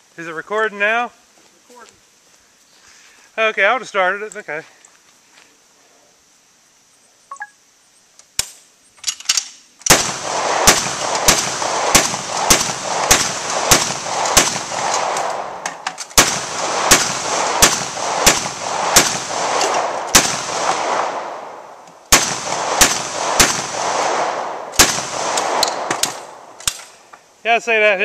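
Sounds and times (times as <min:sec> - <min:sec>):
gun mechanism clattering: 0:08.4 - 0:09.9, 0:15.2 - 0:16.2, 0:25.4 - 0:27.0
hand-cranked gun firing: 0:09.0 - 0:20.8, 0:22.1 - 0:23.8, 0:24.7 - 0:26.9.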